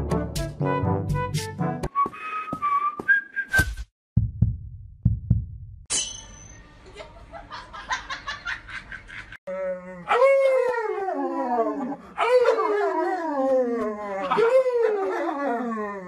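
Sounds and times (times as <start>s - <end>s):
dog howling: 9.5s - 16.0s.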